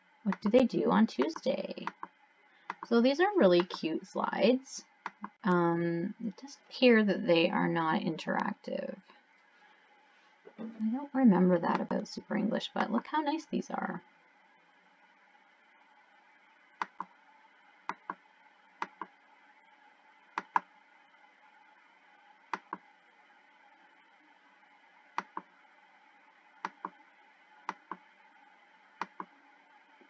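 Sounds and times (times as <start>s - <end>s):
computer mouse button clicks: 20.4s - 20.7s.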